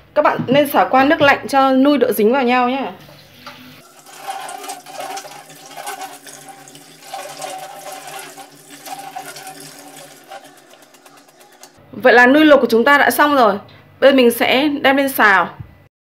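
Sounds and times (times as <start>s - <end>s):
tap water splashing into metal sink: 3.4s - 11.8s.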